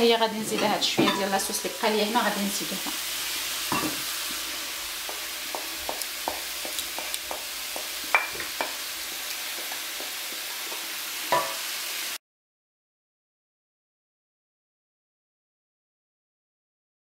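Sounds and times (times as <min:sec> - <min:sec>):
vegetables sizzling in a frying pan: 0:00.0 - 0:12.2.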